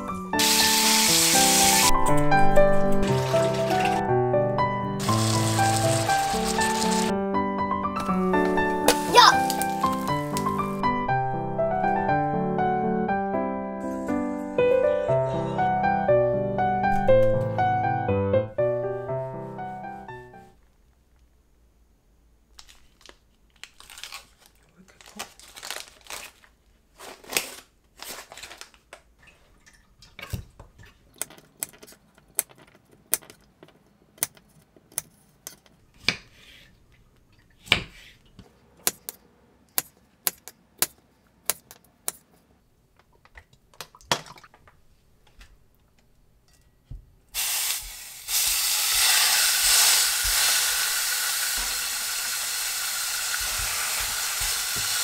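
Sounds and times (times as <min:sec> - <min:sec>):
meat sizzling in a frying pan: 0:00.4 - 0:01.9, 0:05.0 - 0:07.1, 0:47.4 - 0:55.0
plastic bag crinkling: 0:09.0 - 0:10.8, 0:22.5 - 0:29.0.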